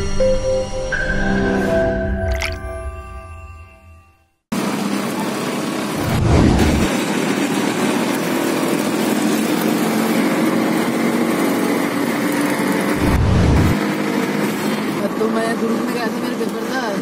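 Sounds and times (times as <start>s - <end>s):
vehicle engine running: 4.6s - 16.7s
road noise: 4.6s - 17.0s.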